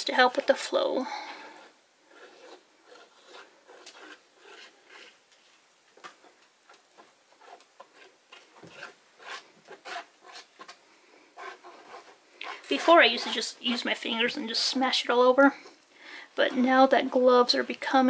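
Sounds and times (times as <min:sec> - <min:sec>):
wet paint smearing: 0:01.6 - 0:10.8.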